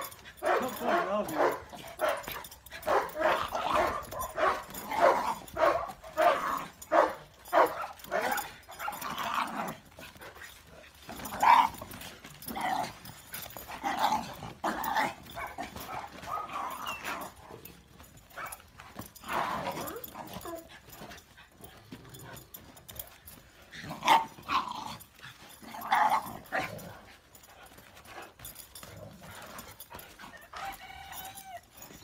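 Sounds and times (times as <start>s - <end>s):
dog barking: 0.0s - 9.0s, 15.4s - 16.8s.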